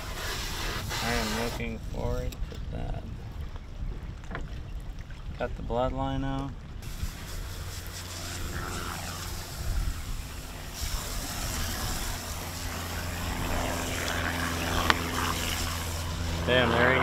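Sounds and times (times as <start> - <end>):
low motor hum: 6.4 - 17.0.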